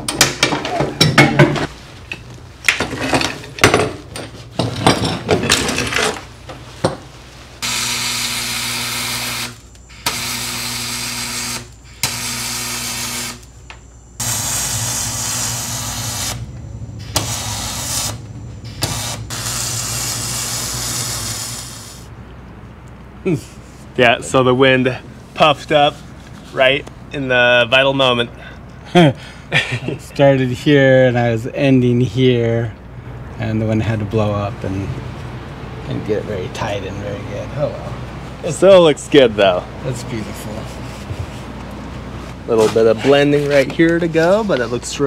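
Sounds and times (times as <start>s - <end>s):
welding arc hissing and buzzing: 7.6s - 13.6s, 14.2s - 22.1s.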